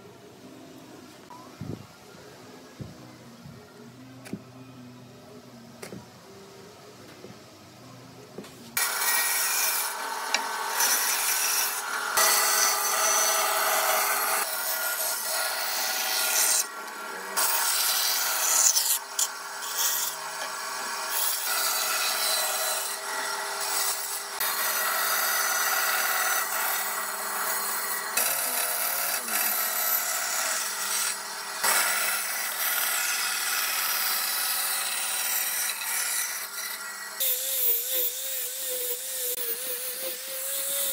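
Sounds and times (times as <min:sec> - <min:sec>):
saw blade rasping through wood: 0:08.8 - 0:16.7, 0:17.4 - 0:40.9.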